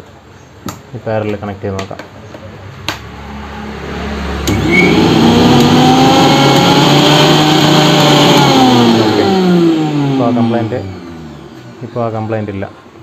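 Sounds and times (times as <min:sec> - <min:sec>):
electric motor whining: 0:03.9 - 0:12.2.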